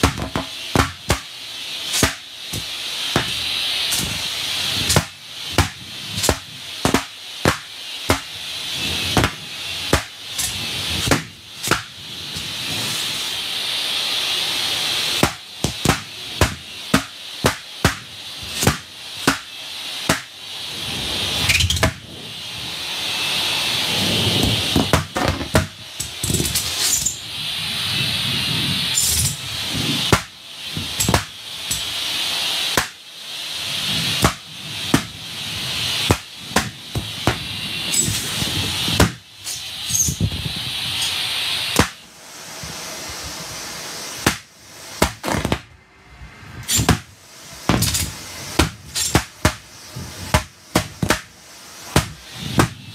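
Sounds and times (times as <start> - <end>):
balloons popping: 0.0 - 1.3, 1.9 - 4.2, 4.8 - 8.3, 9.1 - 10.2, 11.0 - 12.5, 15.2 - 20.3, 34.2 - 35.1, 44.2 - 45.7, 46.7 - 47.1, 50.3 - 51.3
air pump: 0.0 - 45.7, 46.4 - 52.9
vacuum rushing hiss: 0.0 - 52.9.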